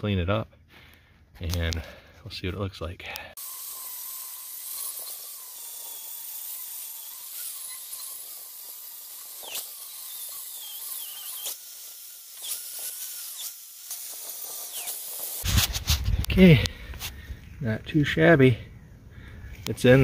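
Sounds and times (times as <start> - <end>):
angle grinder grinding steel: 3.4 - 17.2
brief scrapes: 15.4 - 17.2.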